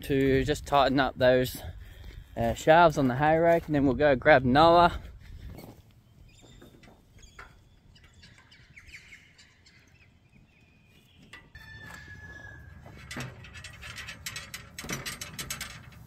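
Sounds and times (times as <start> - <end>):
small birds chirping: 5.3 - 11.6.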